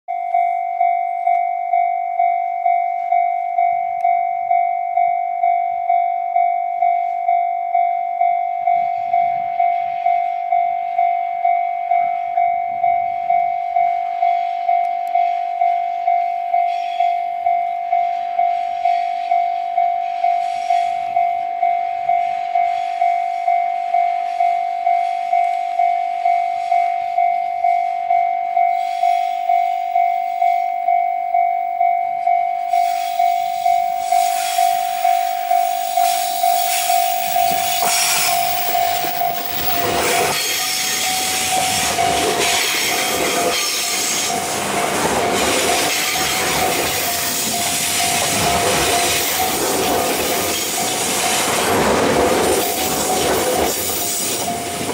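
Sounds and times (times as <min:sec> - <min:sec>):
level-crossing warning bell: 0:00.1 - 0:54.9
train passing on rails: 0:00.1 - 0:54.9.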